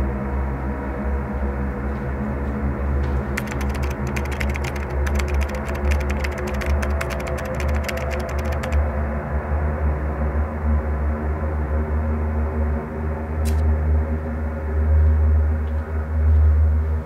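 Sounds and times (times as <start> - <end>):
fast keyboard typing: 3.4 - 9.0.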